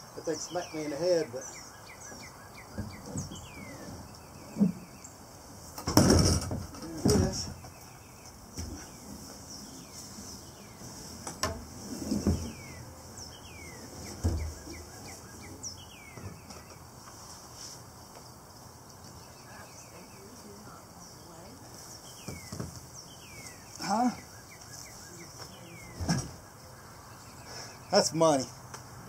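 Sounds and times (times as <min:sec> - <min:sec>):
kayak clattering against roof rack: 0:05.8 - 0:07.8.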